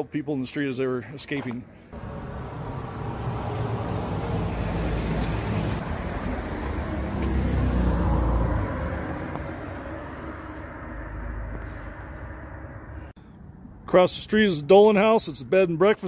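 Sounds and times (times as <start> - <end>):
vehicle passing on road: 1.9 - 13.8.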